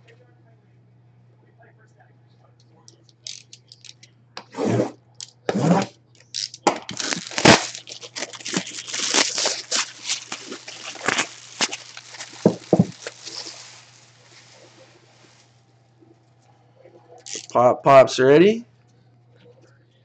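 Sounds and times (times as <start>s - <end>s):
plastic shrink-wrap crinkling and tearing: 3.2s - 4.0s, 6.2s - 15.5s, 17.2s - 17.6s.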